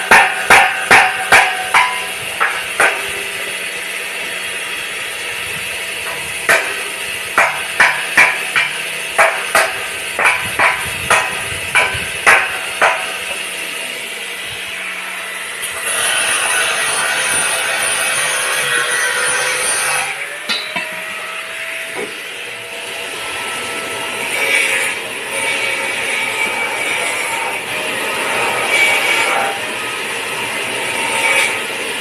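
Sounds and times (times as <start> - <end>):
hammer striking steel: 0.0 - 3.6, 6.0 - 13.5, 20.3 - 22.2.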